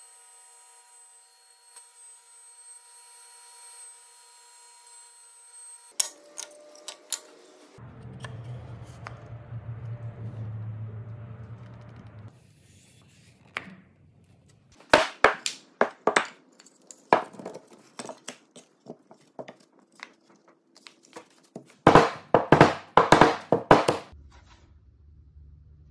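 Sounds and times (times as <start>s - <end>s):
wooden boards knocking: 14.8s - 16.4s, 17.1s - 18.2s, 21.9s - 24.1s.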